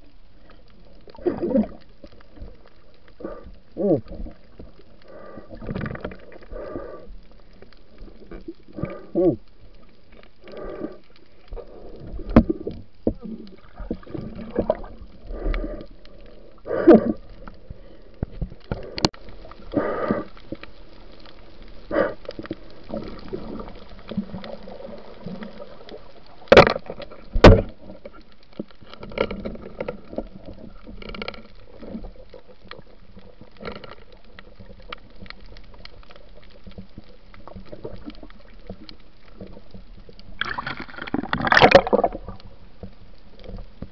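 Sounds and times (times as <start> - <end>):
water sloshing and gurgling: 0.0 - 43.9.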